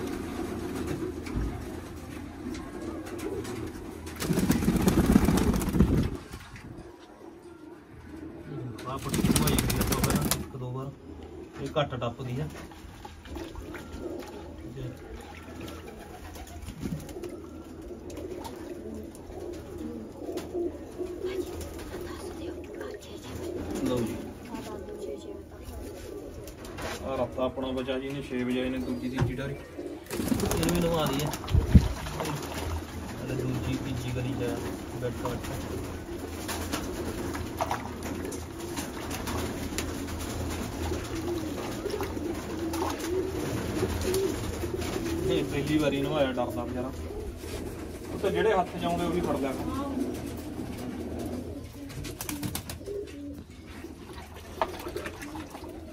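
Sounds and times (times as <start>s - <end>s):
pigeons cooing: 0.0s - 55.9s
water splashing in bucket: 9.0s - 10.5s, 30.1s - 33.8s, 40.5s - 44.4s, 54.0s - 55.9s
water splashes and knocks: 54.0s - 55.7s.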